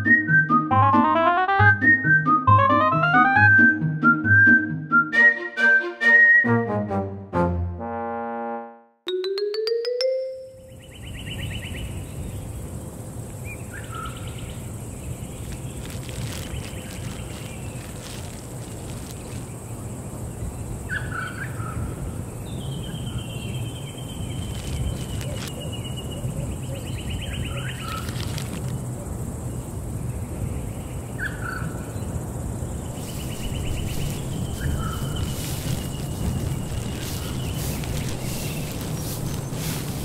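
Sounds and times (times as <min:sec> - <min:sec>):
bird chirp: 0:09.9 - 0:12.6, 0:19.1 - 0:28.2, 0:30.0 - 0:40.0
buzzy bird trills: 0:33.0 - 0:40.0.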